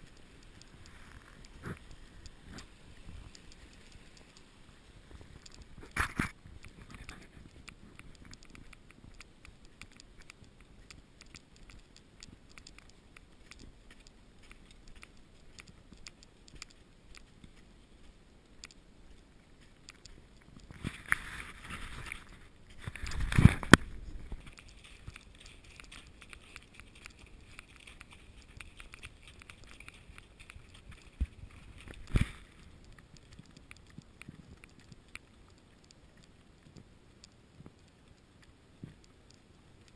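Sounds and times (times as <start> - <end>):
horse hoofbeats on snow: 19.6 - 32.8.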